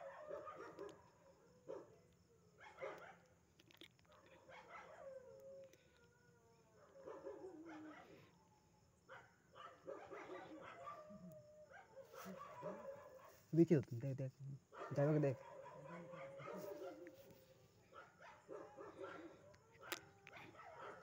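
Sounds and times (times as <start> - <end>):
dogs barking: 0.0 - 1.9, 2.6 - 3.3, 4.2 - 5.3, 6.8 - 8.3, 9.1 - 13.5, 14.7 - 21.0
dogs howling: 4.4 - 8.4, 9.1 - 13.4, 14.7 - 21.0.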